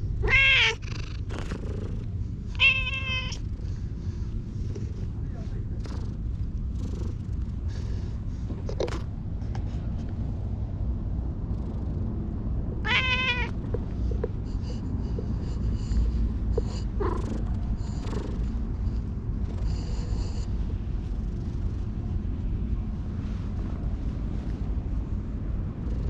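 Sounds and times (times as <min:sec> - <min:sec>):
steady low rumble: 0:00.0 - 0:26.0
cat meowing: 0:00.2 - 0:00.8, 0:02.5 - 0:03.4, 0:12.8 - 0:13.6.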